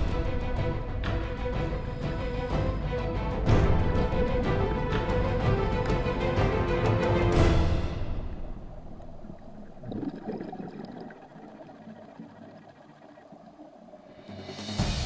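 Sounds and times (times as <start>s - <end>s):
background music: 0.0s - 10.6s, 14.0s - 15.0s
underwater bubbling and gurgling: 7.3s - 14.6s.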